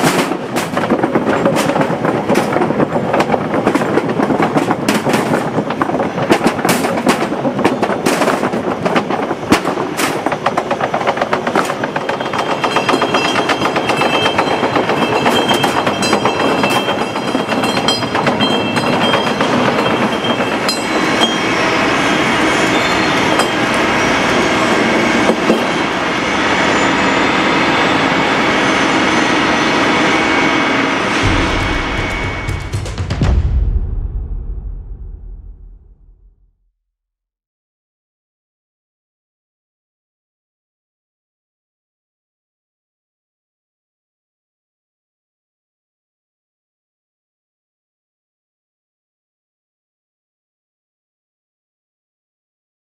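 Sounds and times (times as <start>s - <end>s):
metal castings rattling on conveyor: 11.5s - 21.4s.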